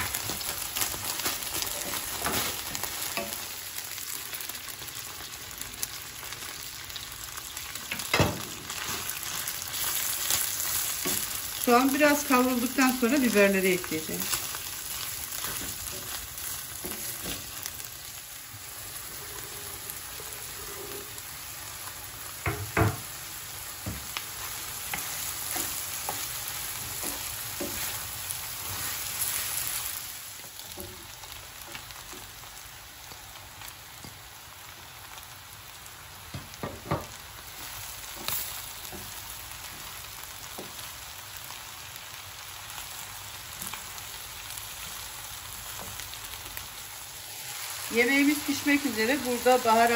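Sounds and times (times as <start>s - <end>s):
meat and onions sizzling in pan: 0.0s - 49.9s
wooden spoon knocking on pan: 22.4s - 23.1s, 23.8s - 24.1s, 36.3s - 37.2s.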